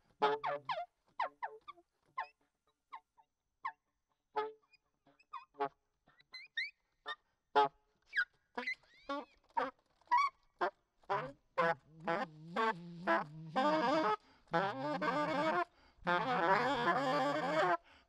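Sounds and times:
saxophone honks and squeals: 0.2s - 1.6s, 11.1s - 17.8s.

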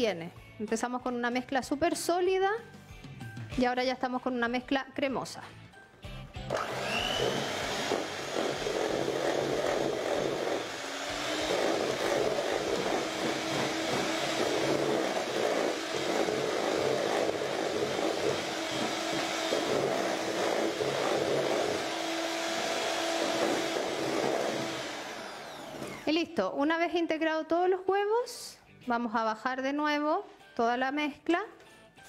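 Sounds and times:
electric mixer whirring: 6.5s - 26.2s.

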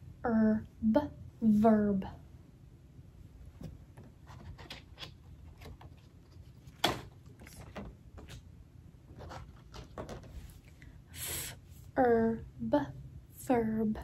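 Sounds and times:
flash cards tapping and rustling: 3.6s - 8.5s, 9.1s - 10.5s.

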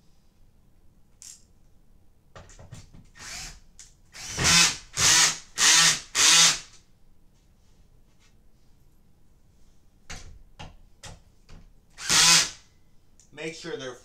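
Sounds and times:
cordless drill driving screw: 3.2s - 3.6s, 4.2s - 6.7s, 12.0s - 12.6s.

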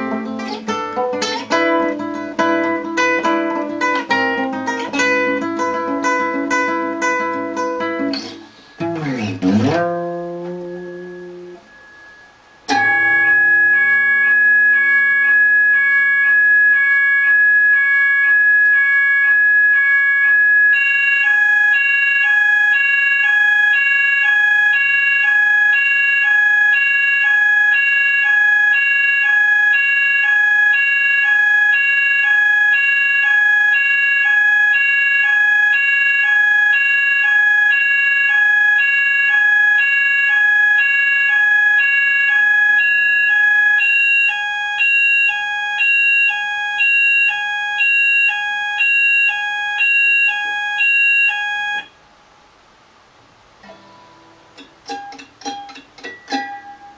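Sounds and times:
steady high synth tone: 10.5s - 29.0s
repeating synthesized notes: 12.7s - 26.2s.

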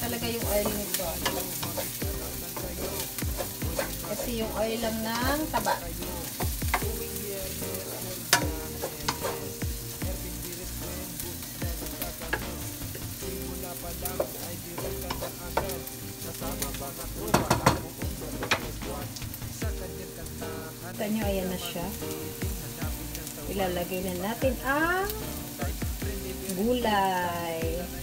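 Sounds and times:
food sizzling in a wok: 0.0s - 28.0s
spatula scraping a pan: 0.4s - 9.6s, 14.0s - 15.8s
spatula knocking against pan: 17.3s - 18.7s.

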